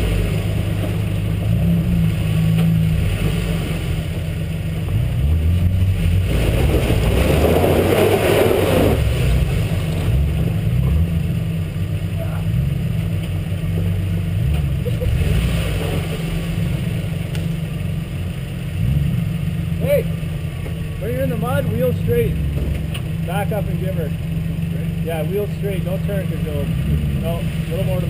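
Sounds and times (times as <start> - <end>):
rushing surge: 0.0 - 11.3
truck engine rumbling: 0.0 - 28.0.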